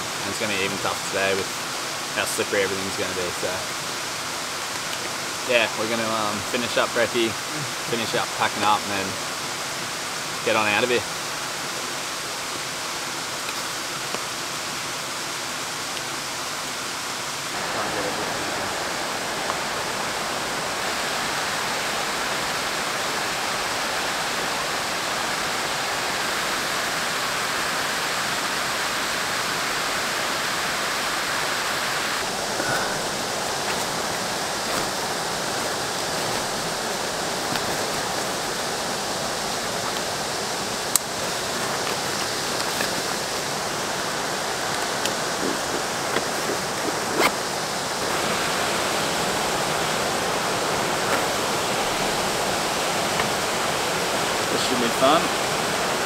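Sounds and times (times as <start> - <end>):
water rushing over rocks: 0.0 - 56.0.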